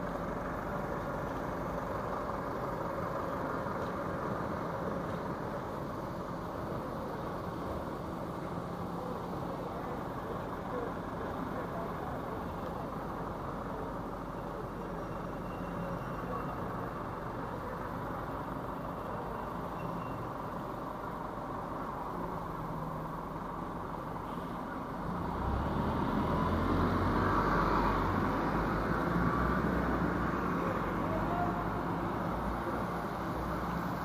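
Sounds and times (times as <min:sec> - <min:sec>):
traffic on wet roads: 0:00.0 - 0:34.0
vehicle engine rumble: 0:00.0 - 0:34.0.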